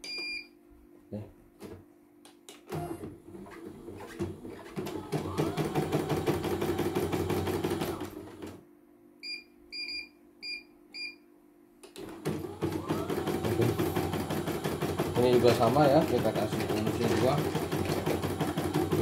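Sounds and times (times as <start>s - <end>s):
embroidery machine stitching: 2.7s - 8.6s, 12.0s - 19.0s
control panel beeps: 9.2s - 11.2s.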